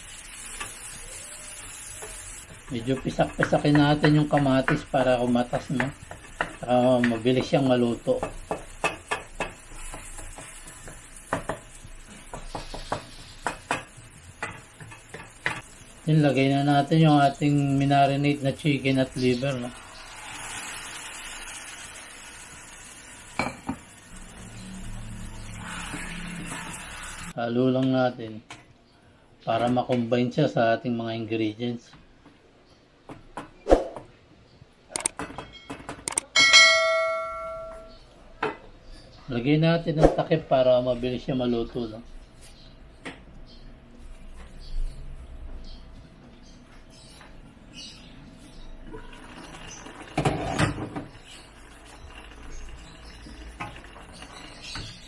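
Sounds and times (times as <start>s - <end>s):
faint oil sizzle: 0.0s - 27.4s, 48.8s - 55.0s
wooden spatula knocking on wok: 3.0s - 11.7s
wooden spatula scraping metal wok: 25.2s - 27.3s
sharp clicks: 34.9s - 35.2s, 36.1s - 36.3s
bright bell chime: 36.4s - 38.0s.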